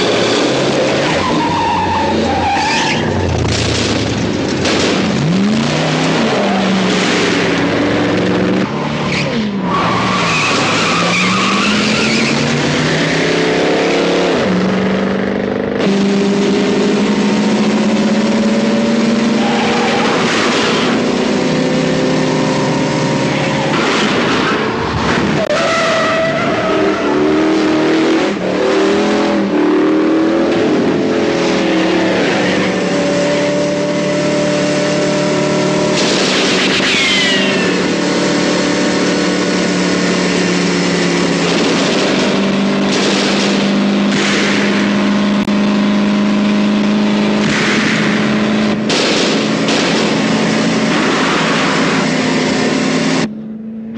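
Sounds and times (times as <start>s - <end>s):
car engines revving: 0.0s - 53.9s
tyres squealing: 1.0s - 3.3s, 8.7s - 13.2s.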